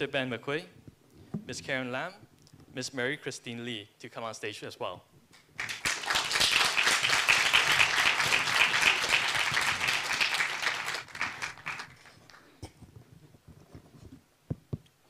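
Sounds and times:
audience applauding: 5.6 - 12.5.

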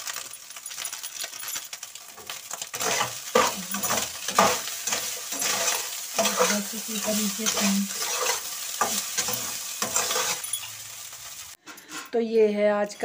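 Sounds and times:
light sizzle: 0.0 - 12.2
spoon scraping a wok: 2.2 - 12.2.

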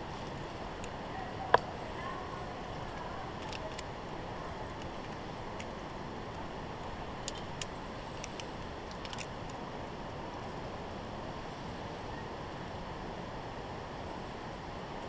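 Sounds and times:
carabiner clinking on steel cable: 2.7 - 3.9, 4.7 - 5.8, 7.1 - 9.6.

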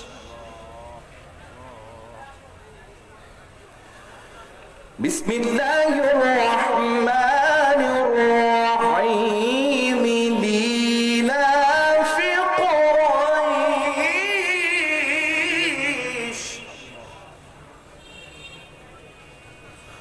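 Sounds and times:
man chanting melodically: 0.0 - 2.4, 5.0 - 17.4.

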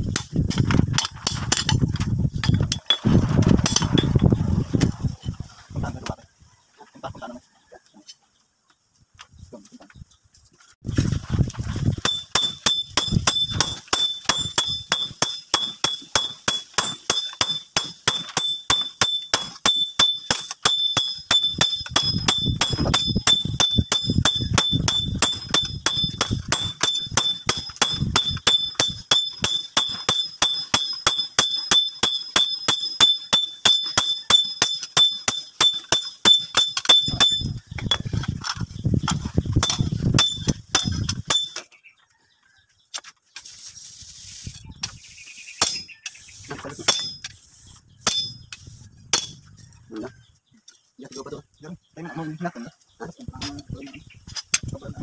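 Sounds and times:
hammer striking metal on anvil: 12.0 - 38.1, 39.6 - 41.7, 45.6 - 46.0, 46.8 - 47.3, 48.0 - 49.4.

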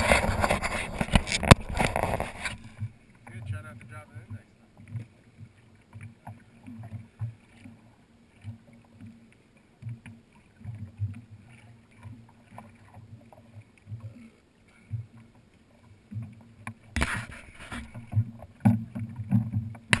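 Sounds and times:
wind on microphone: 0.0 - 2.7
small waves lapping against hull: 0.0 - 20.0.

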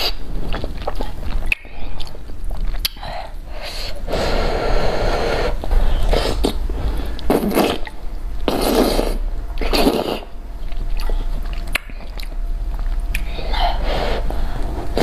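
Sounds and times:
wet chewing: 0.0 - 3.4, 5.6 - 13.4
noodle slurping: 7.2 - 14.2.

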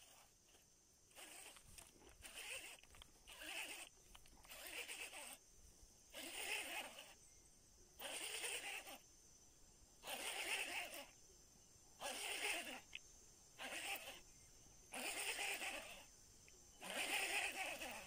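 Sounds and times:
fishing reel whirring: 0.0 - 0.3, 1.1 - 3.9, 4.5 - 5.4, 6.2 - 7.2, 8.0 - 9.0, 10.1 - 11.1, 12.0 - 12.9, 13.6 - 14.2, 14.9 - 16.1, 16.8 - 18.0.

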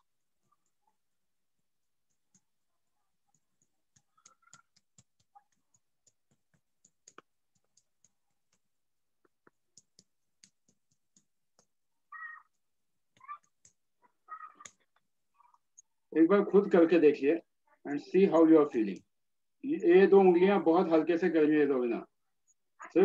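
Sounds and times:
fingertip taps on skin: 3.4 - 11.8.

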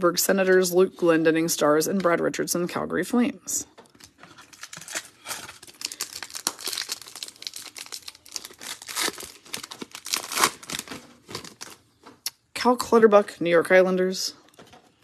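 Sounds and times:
foil wrapper crinkling: 3.9 - 11.9.

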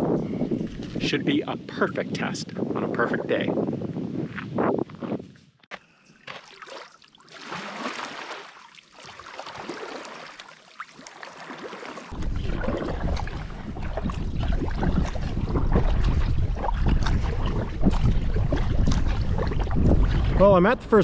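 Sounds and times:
wind rumble on microphone: 0.0 - 5.6, 12.1 - 21.0
water lapping against hull: 0.6 - 1.1, 5.9 - 21.0
kayak paddle splashing: 6.2 - 21.0.

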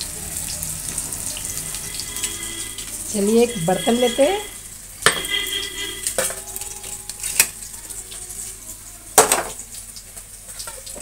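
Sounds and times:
onions sizzling in oil: 0.0 - 11.0
metal pot and utensils clanking: 5.0 - 7.6.

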